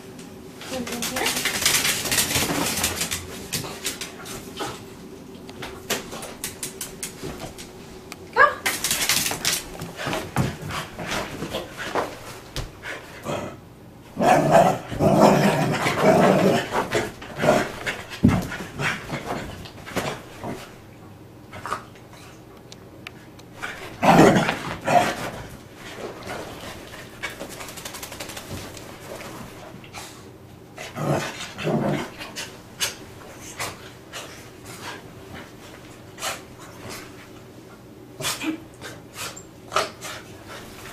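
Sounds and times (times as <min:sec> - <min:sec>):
dog scrambling on bedding: 0:00.6 - 0:04.8.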